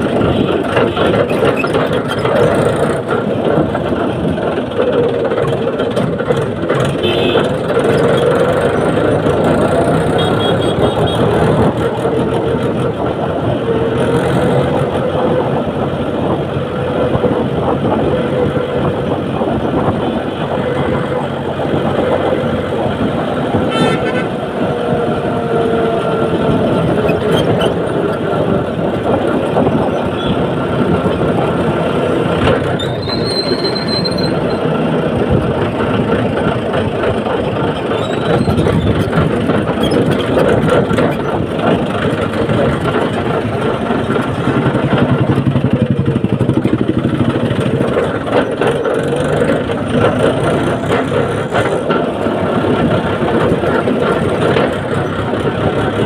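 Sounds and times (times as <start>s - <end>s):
tractor diesel engine running: 0.0s - 56.0s
vehicle horn toots: 7.0s - 7.6s, 10.0s - 11.4s, 23.7s - 24.4s.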